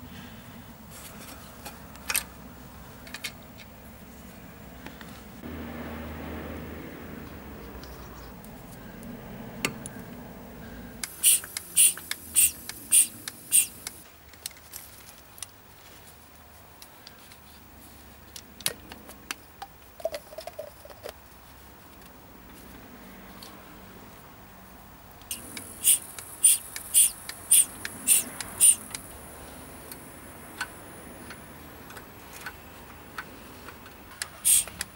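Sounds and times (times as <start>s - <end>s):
sharp clicks of small tools: 11.0s - 14.6s, 25.2s - 29.0s, 33.2s - 34.9s.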